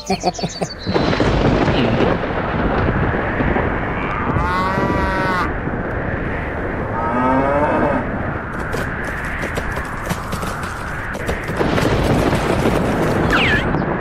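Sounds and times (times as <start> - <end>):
cow mooing: 4.0 - 5.5, 7.0 - 8.1
steady rushing noise: 8.0 - 14.0.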